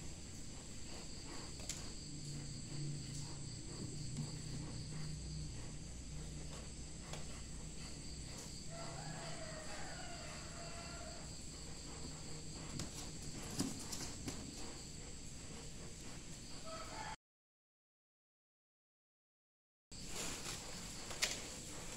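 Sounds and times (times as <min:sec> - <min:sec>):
high-pitched insect chorus: 0:00.0 - 0:17.2.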